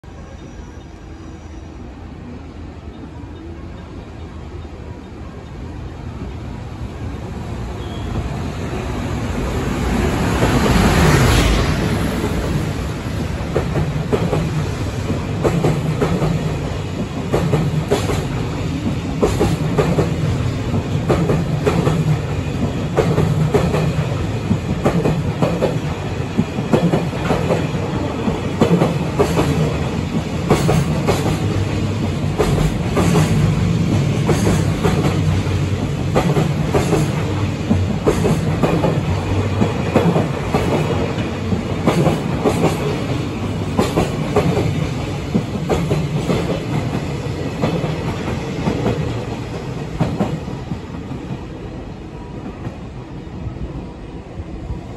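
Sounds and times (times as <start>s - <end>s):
electric locomotive passing: 0.0s - 54.9s
train wheels clacking over rail joints: 12.2s - 51.4s.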